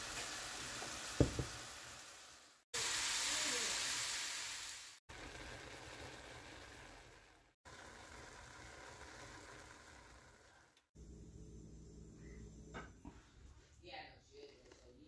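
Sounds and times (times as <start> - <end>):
food sizzling in a skillet: 0.0 - 10.8.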